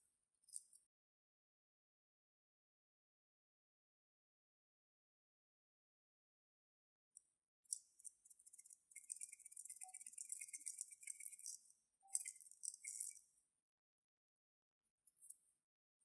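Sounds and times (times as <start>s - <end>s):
glitter rattling in a vial: 8.1s - 13.2s.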